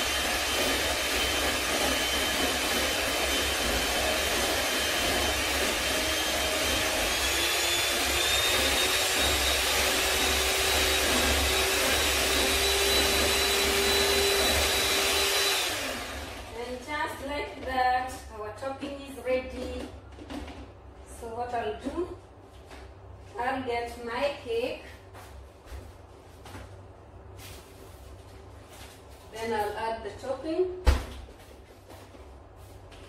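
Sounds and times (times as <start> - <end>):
electric hand mixer whirring: 0.0 - 16.8.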